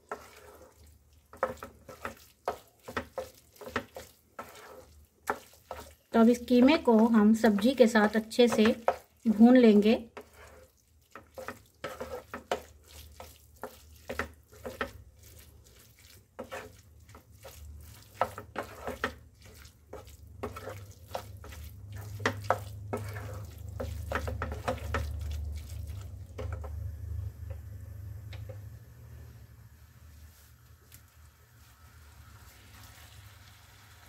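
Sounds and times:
spatula scraping frying pan: 0.0 - 26.9
food frying: 0.0 - 34.0.

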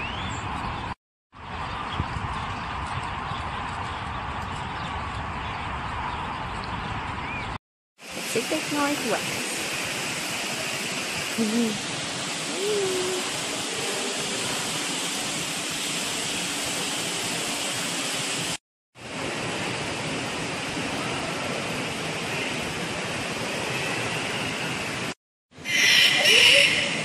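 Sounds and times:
waterfall rushing: 8.0 - 25.0.

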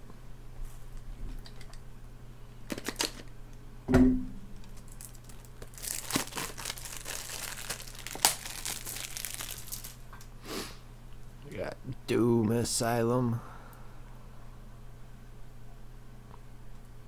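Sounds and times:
knock: 3.9 - 4.3
packaging crinkling and tearing: 4.6 - 10.1.

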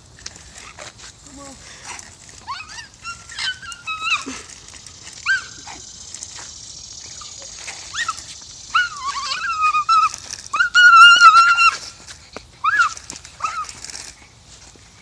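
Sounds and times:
dog whining: 2.5 - 4.4, 7.9 - 11.8.

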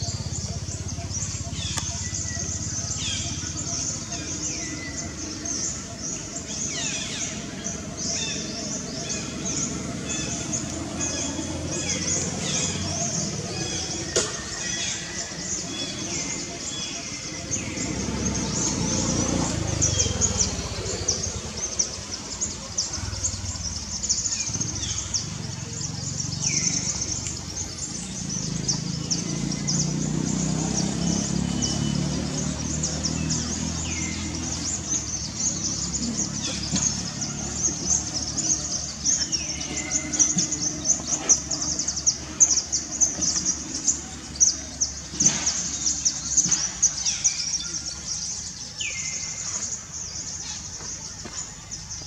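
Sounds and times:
pulsing insect chorus: 0.0 - 50.8.

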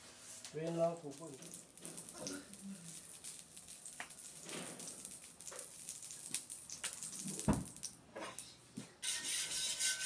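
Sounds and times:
oil sizzling in frying pan: 1.1 - 7.8.

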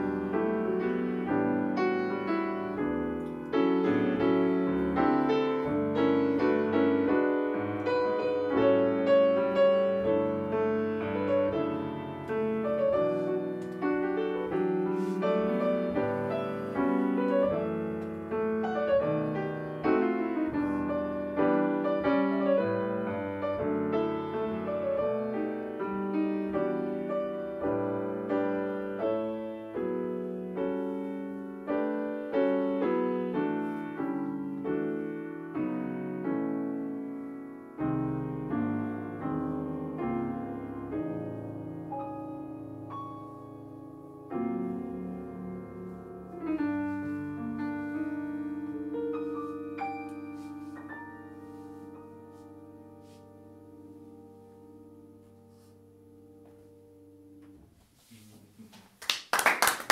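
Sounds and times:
grand piano jazz ballad: 0.0 - 59.0.

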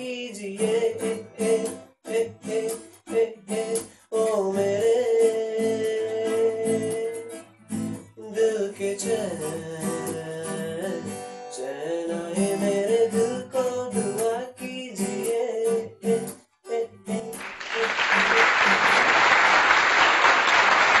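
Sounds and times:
man singing: 0.0 - 7.4, 8.0 - 18.4
acoustic guitar strummed and plucked: 0.0 - 19.1.

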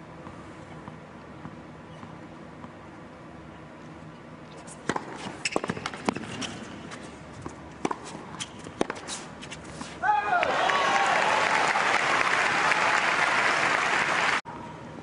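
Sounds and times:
footwork on court: 4.5 - 10.6
racket strikes and ball bounces: 4.6 - 10.0.

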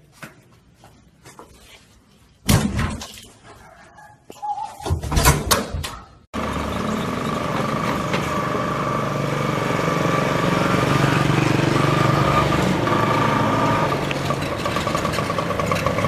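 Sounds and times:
auto-rickshaw engine: 6.4 - 16.0
motor scooter passing: 6.4 - 16.0.

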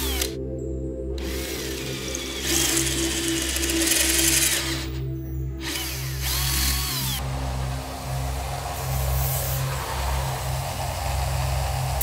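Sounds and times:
cordless drill boring through metal: 0.0 - 0.4, 1.2 - 7.8
background music with bass: 0.0 - 12.0.

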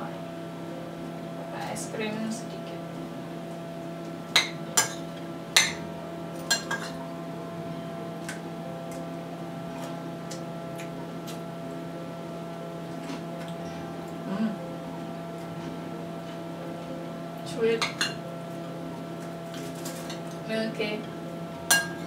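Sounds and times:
appliance hum: 0.0 - 22.0
spoon clinking against ceramic bowl: 6.4 - 7.0, 21.7 - 22.0.

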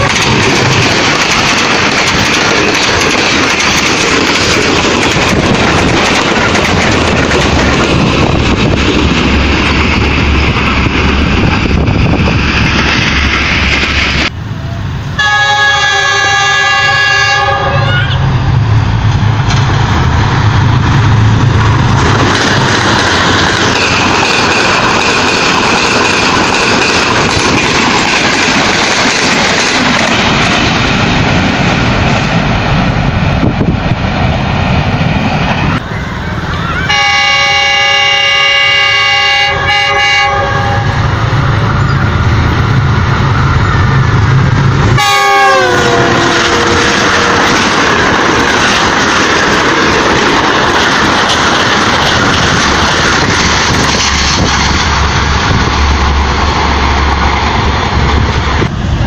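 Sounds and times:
train wheels rumbling on track: 0.0 - 59.0
train horn chord: 15.2 - 18.3, 36.9 - 41.1, 45.0 - 47.5.

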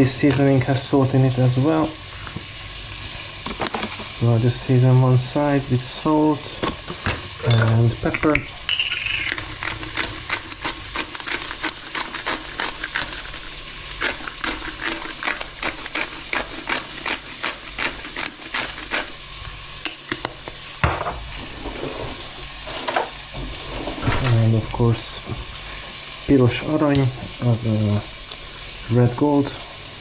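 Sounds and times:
bacon sizzling in a pan: 0.0 - 20.1, 24.5 - 30.0
pepper mill grinding clicks: 8.2 - 19.2.

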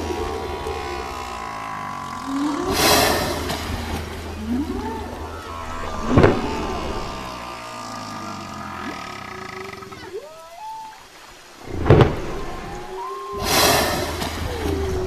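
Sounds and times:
whale moans and whoops: 0.0 - 11.2, 12.3 - 15.0.

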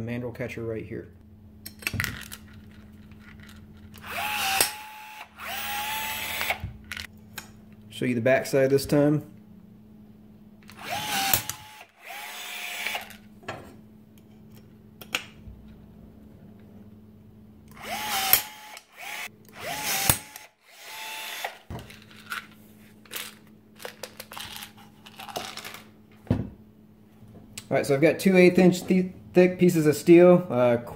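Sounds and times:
rivet tool motor whining: 3.9 - 7.1, 10.7 - 13.2, 17.7 - 21.7.

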